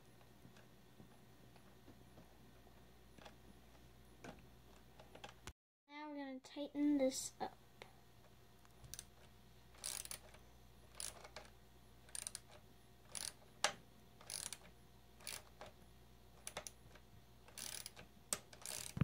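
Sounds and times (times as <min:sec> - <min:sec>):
wrench clicking: 0:09.8 - 0:11.5, 0:12.1 - 0:13.4, 0:14.2 - 0:15.6, 0:17.5 - 0:19.0.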